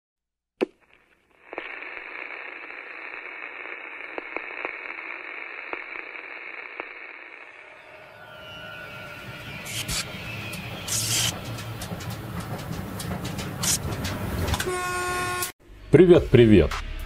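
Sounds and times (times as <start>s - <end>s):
static crackles and clicks: 0.6s - 7.7s, 9.5s - 14.7s
radio static hiss: 0.9s - 7.8s, 9.5s - 11.4s.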